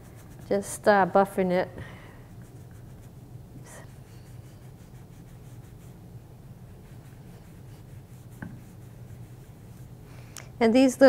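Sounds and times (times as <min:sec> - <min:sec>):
sponge rubbing clay pot: 0:00.0 - 0:00.9, 0:02.4 - 0:10.0
low steady hum: 0:00.0 - 0:11.0.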